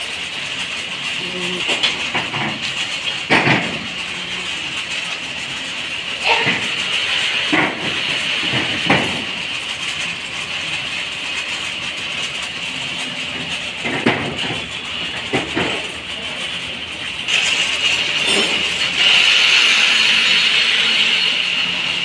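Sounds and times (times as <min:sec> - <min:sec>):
steady mechanical din: 0:00.0 - 0:21.8
voices: 0:01.2 - 0:02.0, 0:03.7 - 0:04.7
metal parts clanking: 0:18.1 - 0:19.0.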